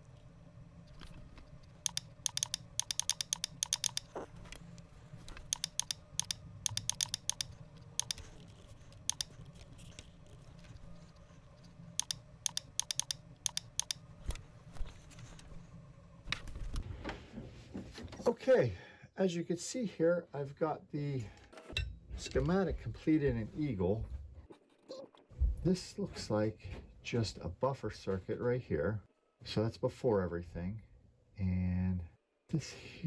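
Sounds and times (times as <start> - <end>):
low steady hum: 0.0 - 33.0
typing on computer keyboard: 1.9 - 4.2, 5.4 - 8.3, 9.0 - 10.0, 12.0 - 14.0.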